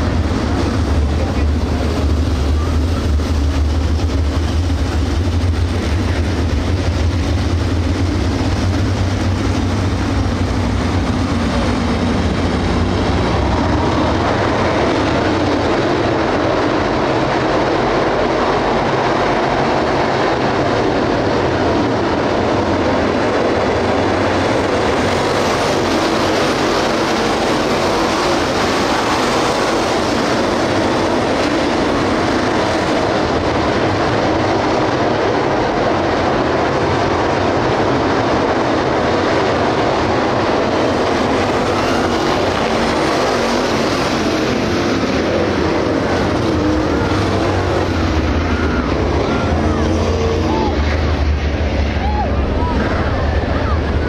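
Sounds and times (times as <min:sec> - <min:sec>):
race car engines roaring: 0:00.0 - 0:54.0.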